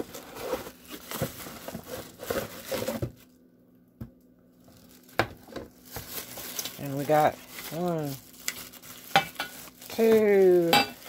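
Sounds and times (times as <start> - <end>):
cardboard box rustling: 0.0 - 3.2.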